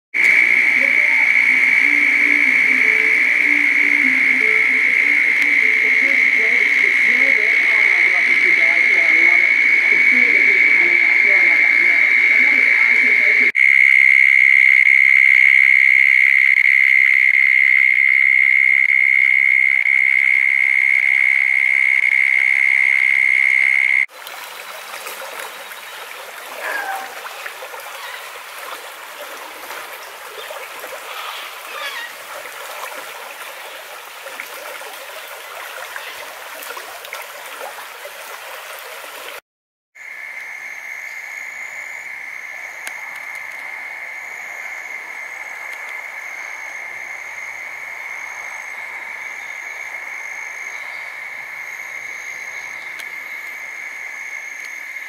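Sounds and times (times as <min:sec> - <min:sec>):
soft pulsing high call: 0:00.2 - 0:24.1
creek rushing and splashing: 0:24.0 - 0:39.4
trilling animal chorus: 0:25.5 - 0:32.3.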